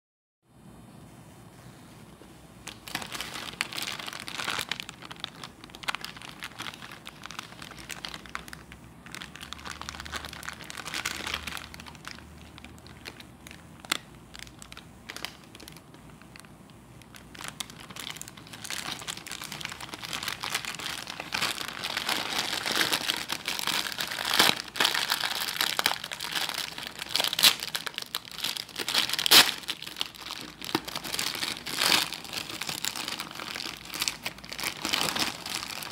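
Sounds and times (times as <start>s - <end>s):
plastic wrapping crinkling: 2.0s - 35.9s.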